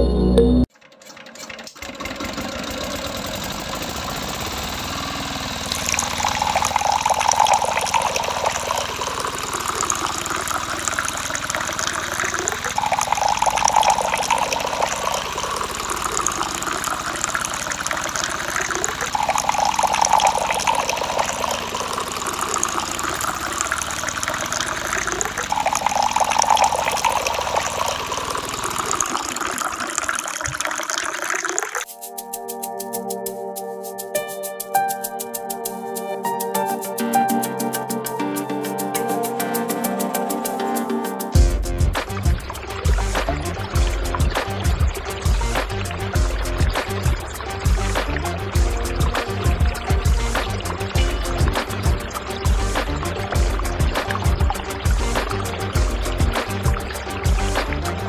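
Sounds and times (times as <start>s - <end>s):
small motor hum: 1.0s - 30.5s
water gushing and splashing: 1.4s - 32.0s, 41.3s - 58.0s.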